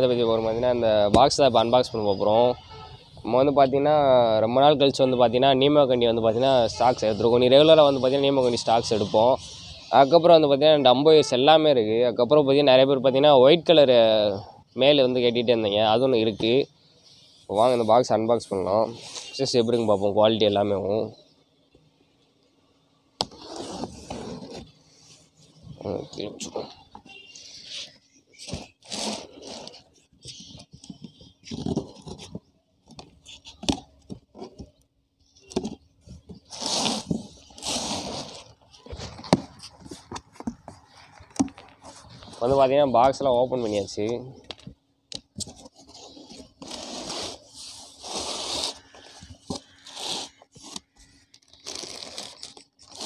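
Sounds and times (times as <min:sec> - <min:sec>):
packing tape scratching and peeling: 0:23.2 - 0:24.8, 0:27.3 - 0:32.4, 0:36.1 - 0:42.7, 0:45.4 - 0:53.0
cardboard and plastic bags rustling: 0:23.3 - 0:34.8.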